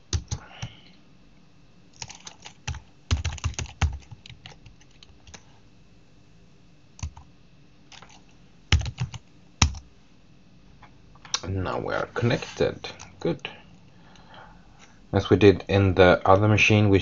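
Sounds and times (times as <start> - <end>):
typing on computer keyboard: 0.1 - 0.7, 2.0 - 5.4, 7.0 - 7.2, 7.9 - 9.8.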